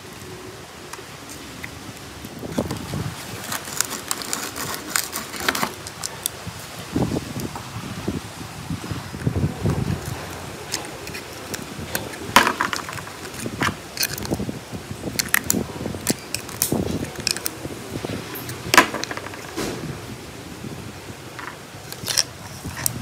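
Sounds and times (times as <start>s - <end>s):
plastic parts clicking and scraping: 0.9s - 6.4s, 9.6s - 19.8s, 21.4s - 23.0s.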